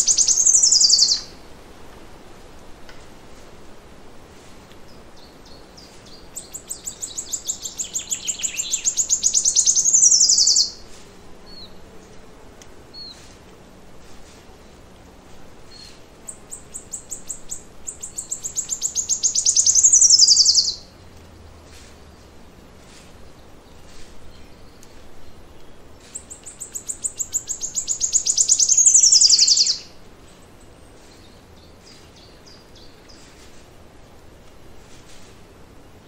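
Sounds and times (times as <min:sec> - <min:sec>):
faint bird chirps: 0:00.0 - 0:01.3, 0:04.9 - 0:10.8, 0:15.7 - 0:20.8, 0:25.6 - 0:33.4
songbird singing: 0:00.0 - 0:01.4, 0:04.6 - 0:36.0.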